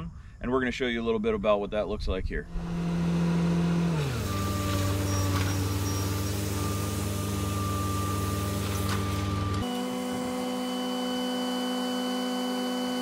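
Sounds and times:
engine droning: 2.5s - 11.3s
water spraying hiss: 4.0s - 9.6s.

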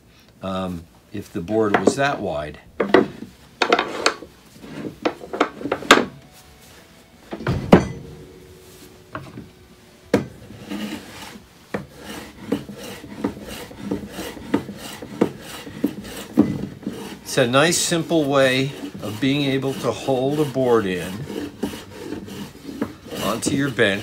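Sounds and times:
hand plane strokes on wood: 0.5s - 6.7s, 8.1s - 24.0s
wooden wedge knocks: 1.7s - 2.0s, 2.8s - 4.2s.

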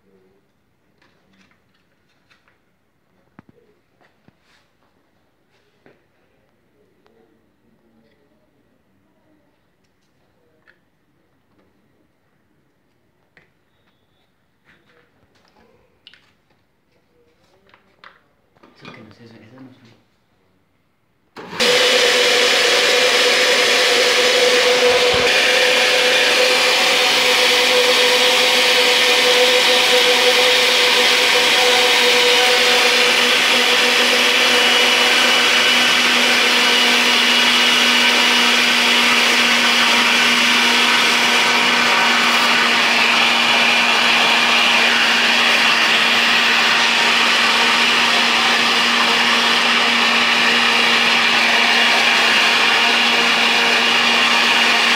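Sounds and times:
blender running: 21.4s - 54.9s.

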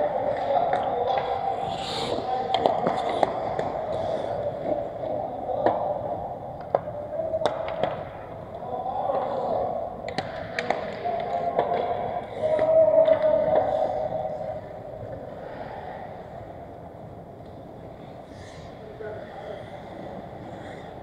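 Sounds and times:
skating and rink noise: 0.0s - 21.0s
hockey sticks clacking on puck: 0.1s - 6.0s, 6.6s - 14.6s.

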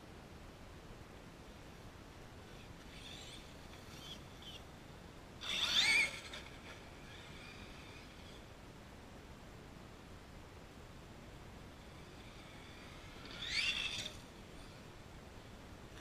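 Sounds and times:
rc truck electric motor whining: 2.4s - 4.6s, 5.4s - 8.6s, 11.7s - 14.9s.

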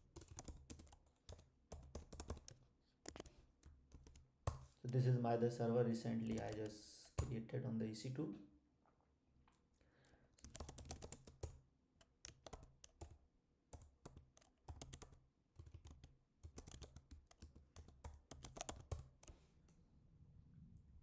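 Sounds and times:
keyboard typing: 0.0s - 5.1s, 6.1s - 7.4s, 10.4s - 19.4s.

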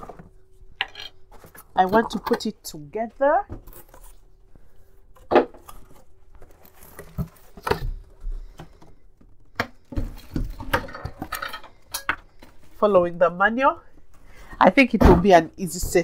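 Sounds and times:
plastic rustling: 3.6s - 12.9s.

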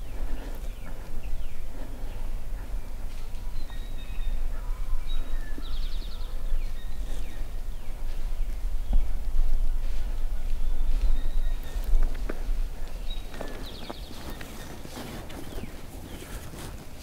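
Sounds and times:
songbirds calling: 0.0s - 17.0s
steady low rumble: 0.0s - 17.0s.

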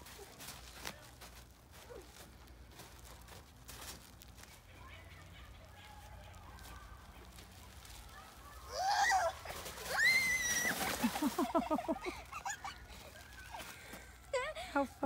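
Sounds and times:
sled scraping on snow: 4.5s - 14.2s
girl shouting: 8.2s - 10.8s
girl squealing: 8.7s - 11.0s
girl laughing: 10.5s - 13.2s.

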